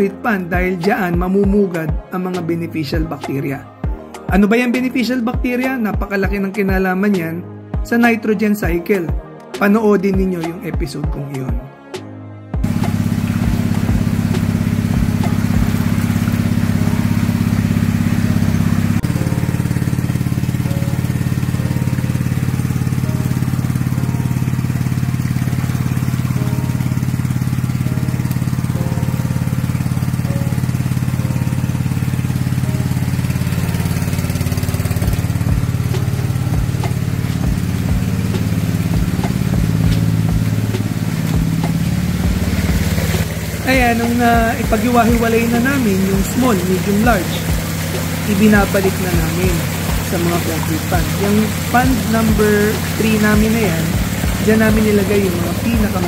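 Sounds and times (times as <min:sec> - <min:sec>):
small engine running: 0:12.6 - 0:56.0.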